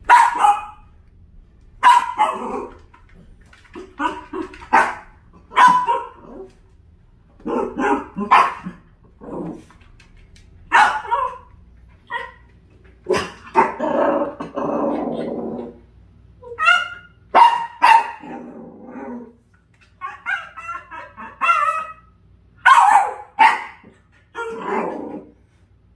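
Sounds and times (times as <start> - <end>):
dog barking: 0.0 - 0.9, 1.8 - 2.8, 4.0 - 6.5, 7.4 - 8.8, 10.7 - 11.5, 16.6 - 18.4, 20.0 - 25.0.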